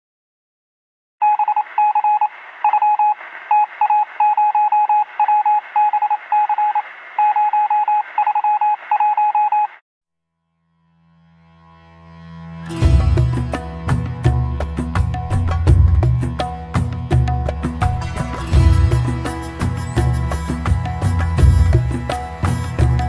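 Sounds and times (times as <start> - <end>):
short electronic beeps: 1.2 - 9.8
thin radio hiss: 1.6 - 8.2.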